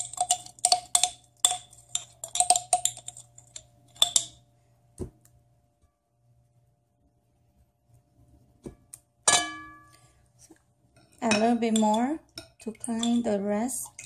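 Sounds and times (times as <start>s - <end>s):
spoon scraping inside jar: 0.0s - 4.2s.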